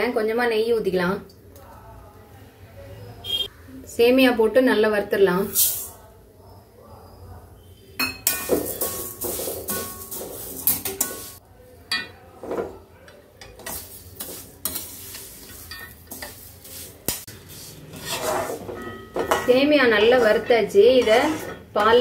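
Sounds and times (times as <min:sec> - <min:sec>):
metal spatula scraping pan: 0:08.3 - 0:11.4, 0:13.4 - 0:22.0.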